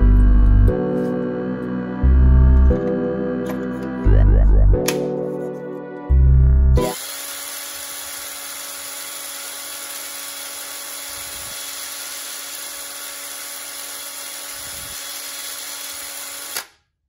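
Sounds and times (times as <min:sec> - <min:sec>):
cordless drill whining: 0:06.9 - 0:16.7.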